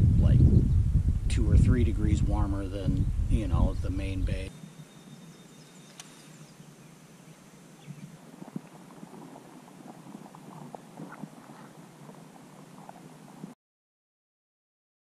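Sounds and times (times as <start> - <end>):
low steady water hiss: 0.0 - 13.6
sharp click: 5.9 - 6.2.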